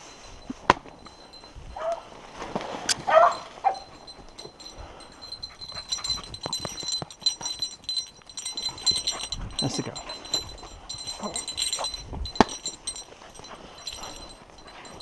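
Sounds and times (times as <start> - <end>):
dog yelping: 1.8 - 2.1, 2.9 - 4.2.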